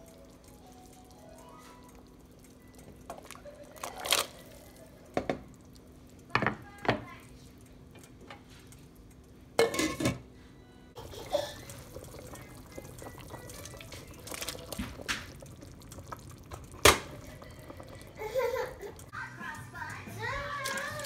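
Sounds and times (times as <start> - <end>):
broth bubbling: 0.0 - 6.4, 11.0 - 19.1
metal pot lid clanking: 9.6 - 10.2.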